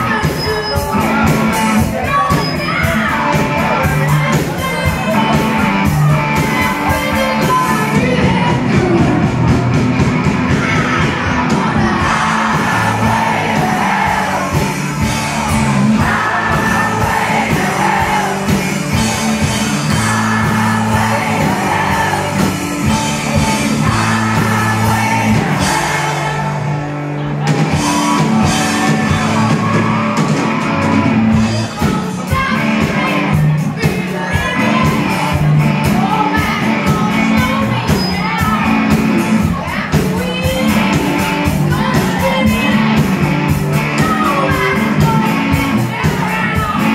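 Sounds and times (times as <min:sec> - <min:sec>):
bass guitar: 0:00.0 - 0:46.9
drum kit: 0:00.0 - 0:46.9
electric guitars: 0:00.0 - 0:46.9.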